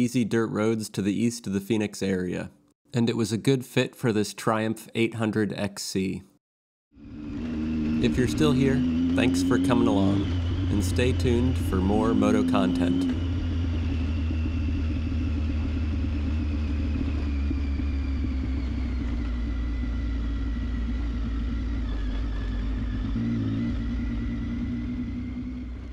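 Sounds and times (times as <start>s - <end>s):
motorcycle engine running: 6.9s - 25.9s.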